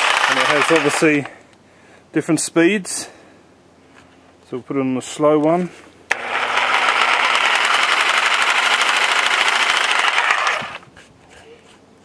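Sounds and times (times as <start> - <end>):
reciprocating saw running: 0.0 - 1.3, 6.1 - 10.9.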